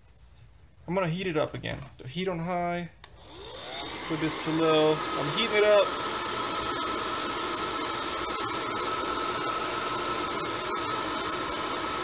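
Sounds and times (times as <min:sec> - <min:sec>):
hair dryer running: 0:03.1 - 0:12.0.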